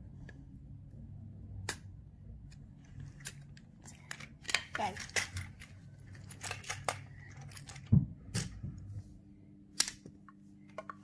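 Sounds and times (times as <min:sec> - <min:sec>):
plastic toy parts clicking: 0:02.5 - 0:08.5.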